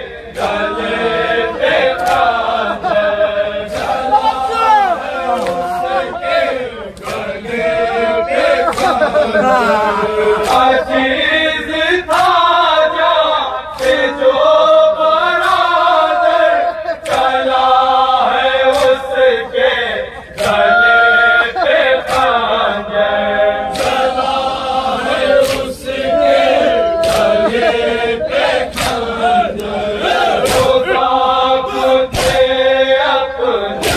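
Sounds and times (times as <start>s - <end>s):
men chanting a lament: 0.0s - 33.9s.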